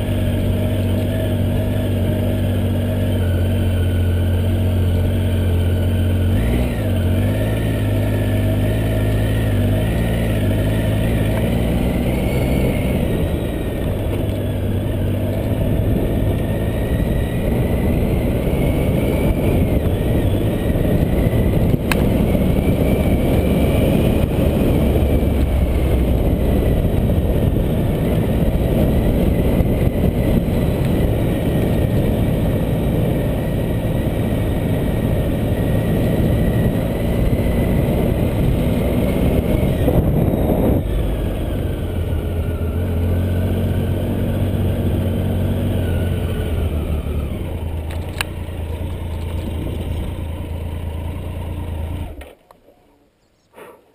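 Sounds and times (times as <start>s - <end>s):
motorcycle engine running: 0.0s - 52.4s
wind rumble: 9.2s - 42.8s.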